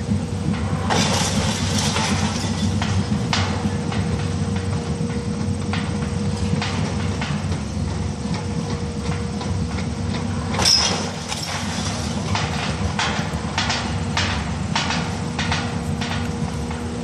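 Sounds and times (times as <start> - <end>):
crane engine running: 0.0 - 17.0
brick and debris falling: 0.9 - 2.7
loud debris crash: 0.9 - 2.7.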